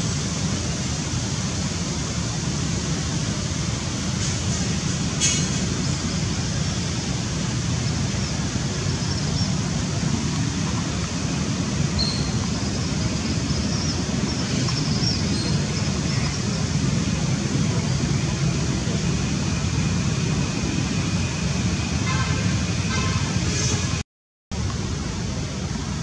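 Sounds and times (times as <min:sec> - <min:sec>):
low rumbling background noise: 0:00.0 - 0:24.0, 0:24.6 - 0:26.0
faint high chirps: 0:12.0 - 0:12.5.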